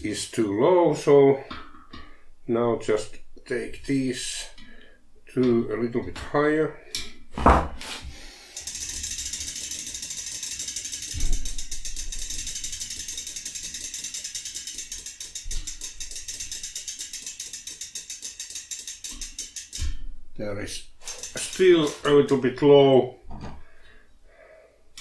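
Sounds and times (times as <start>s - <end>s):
bicycle freewheel ratcheting: 8.4s - 20.0s, 21.0s - 22.4s.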